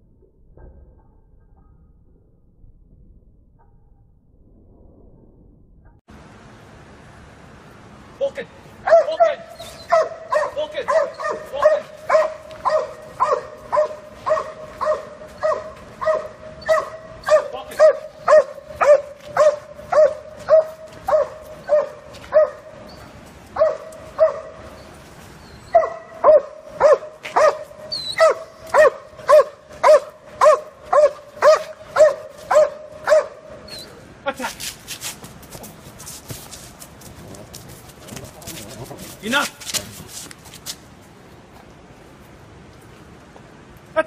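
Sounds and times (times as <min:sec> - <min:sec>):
dog barking: 0:08.8 - 0:22.8, 0:23.6 - 0:24.6, 0:25.7 - 0:33.5.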